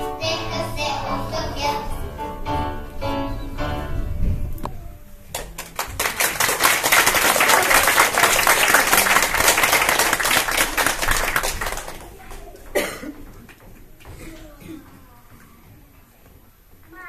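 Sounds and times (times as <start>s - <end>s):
audience applauding: 5.3s - 12.8s.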